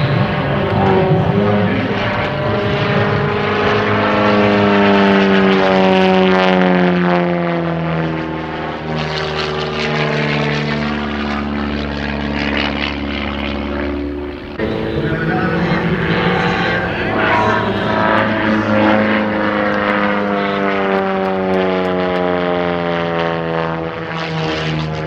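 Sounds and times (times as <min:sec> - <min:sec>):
plane engine and propeller: 0:00.0 - 0:25.0.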